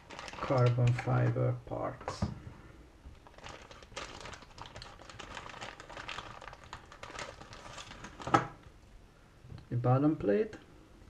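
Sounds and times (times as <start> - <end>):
plastic bag crinkling: 0.0 - 1.0, 3.1 - 8.6.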